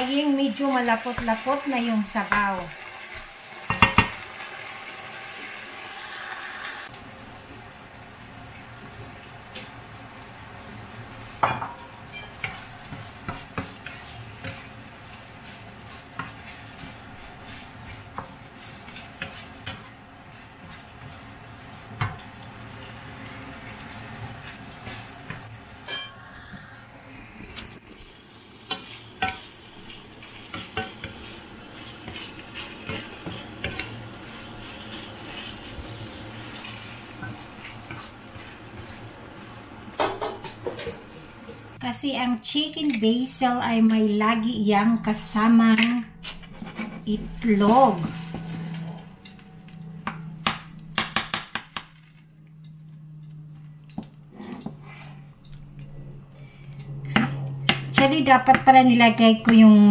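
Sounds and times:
food sizzling: 0:00.0 - 0:56.0
spatula scraping and knocking pan: 0:03.1 - 0:04.2, 0:11.4 - 0:23.4, 0:28.6 - 0:39.1, 0:39.9 - 0:41.1, 0:45.8 - 0:52.8.

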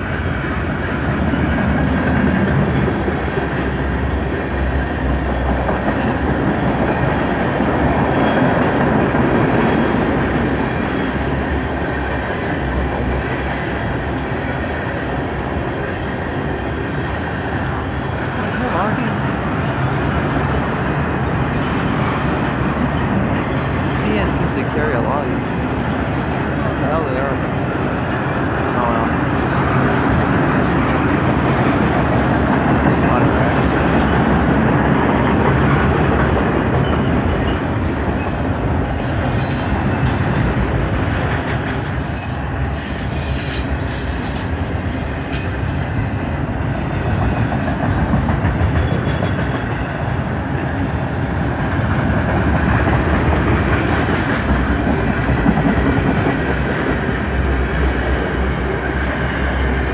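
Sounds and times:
clickety-clack over rail joints: 0:00.0 - 0:59.9
train wheels rumbling on rail: 0:00.0 - 0:59.9
high wheel squeal: 0:36.8 - 0:44.7.

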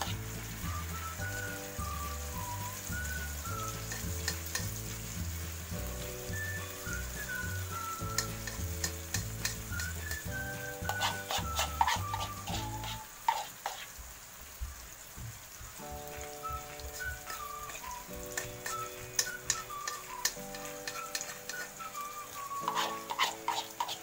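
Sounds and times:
food sizzling in a wok: 0:00.0 - 0:24.0
metal spoon scraping a pan: 0:03.4 - 0:05.2, 0:08.0 - 0:13.9, 0:16.9 - 0:24.0.

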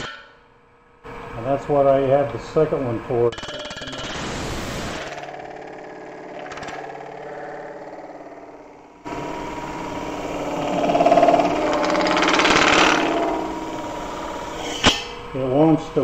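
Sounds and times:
tool rubbing spinning metal: 0:04.9 - 0:15.3
lathe motor humming: 0:05.0 - 0:14.8.

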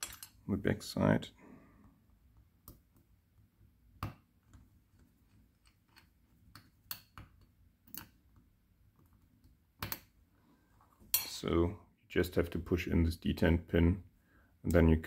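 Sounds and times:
small metallic clicks and taps: 0:04.0 - 0:08.4.

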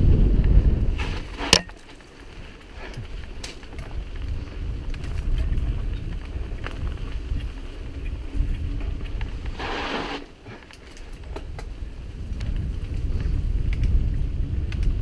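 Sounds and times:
wind buffeting microphone: 0:00.0 - 0:15.0
bike clicks: 0:00.3 - 0:15.0.

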